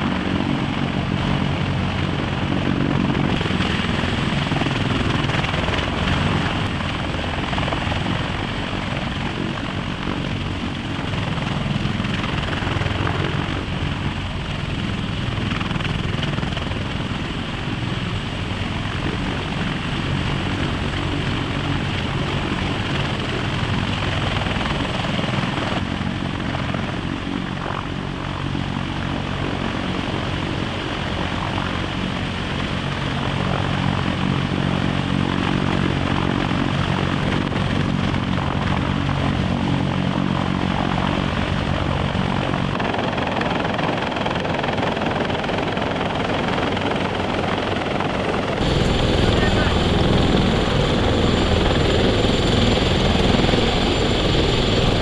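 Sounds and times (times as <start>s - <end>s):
helicopter rotor and engines running: 0.0s - 55.0s.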